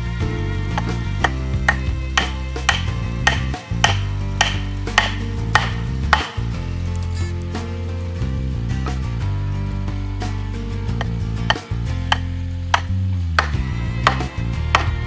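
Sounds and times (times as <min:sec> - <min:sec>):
background music: 0:00.0 - 0:15.0
wooden baton knocking wood: 0:00.8 - 0:06.5, 0:11.0 - 0:15.0.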